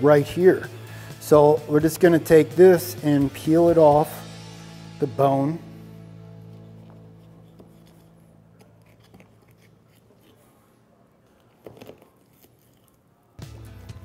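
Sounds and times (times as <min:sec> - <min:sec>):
background music: 0:00.0 - 0:10.0, 0:13.2 - 0:14.0
knife cutting meat: 0:06.9 - 0:10.8, 0:11.4 - 0:13.1
meat tearing from bone: 0:08.6 - 0:10.6, 0:11.6 - 0:13.2.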